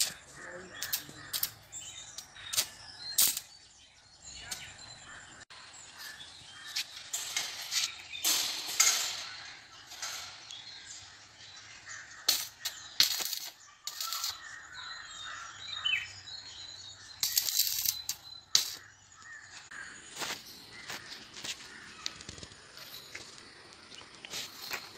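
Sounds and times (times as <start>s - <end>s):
metal knocks and clatter: 6.9s - 11.0s.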